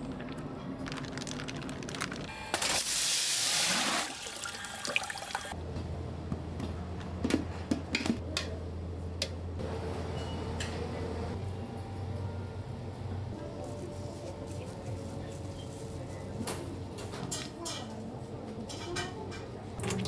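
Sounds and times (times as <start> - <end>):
water gushing from a tap: 3.5 - 5.6, 19.8 - 20.0.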